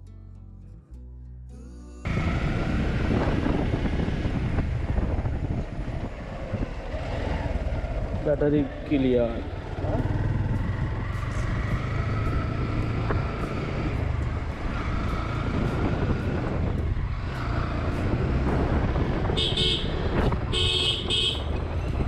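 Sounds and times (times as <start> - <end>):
road and wind noise: 2.0 - 22.0
motorcycle engine running: 2.1 - 22.0
horn beeping: 19.2 - 21.6.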